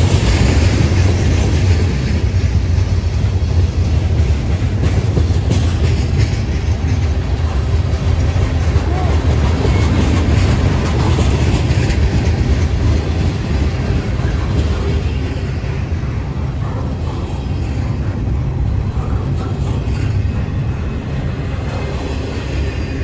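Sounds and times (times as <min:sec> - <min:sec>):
freight train wheels rumbling: 0:00.0 - 0:23.0.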